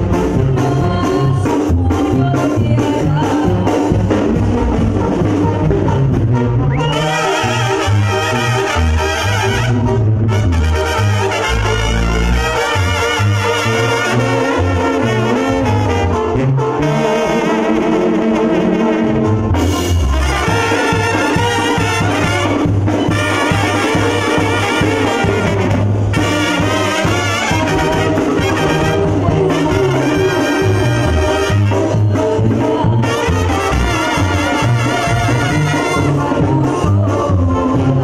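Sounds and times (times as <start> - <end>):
trumpets and trombones melody: 0.0 - 38.0
tuba bass line: 0.0 - 38.0.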